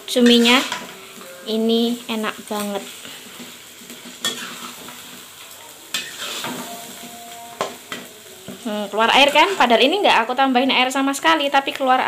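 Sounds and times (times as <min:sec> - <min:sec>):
squid sizzling in wok: 0:00.0 - 0:12.0
metal spatula scraping pan: 0:00.2 - 0:05.3, 0:05.9 - 0:10.0.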